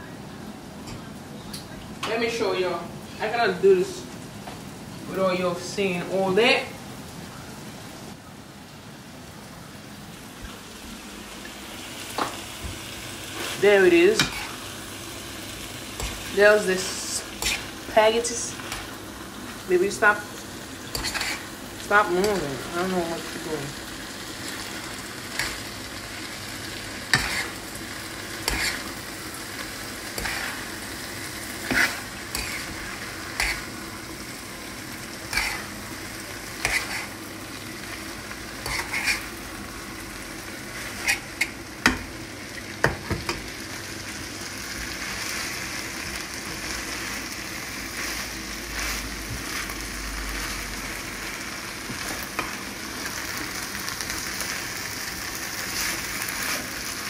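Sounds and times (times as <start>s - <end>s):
food sizzling in a pan: 0.0s - 57.0s
spatula scraping and tapping pan: 14.2s - 14.6s, 17.4s - 17.7s, 20.9s - 21.4s, 27.1s - 27.6s, 28.4s - 28.9s, 30.1s - 30.6s, 31.6s - 32.8s, 33.4s - 33.7s, 35.3s - 35.7s, 36.6s - 37.1s, 38.6s - 39.2s.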